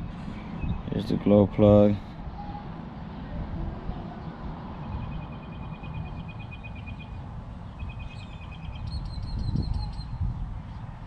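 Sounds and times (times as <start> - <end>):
bird trilling chirps: 4.8 - 10.8.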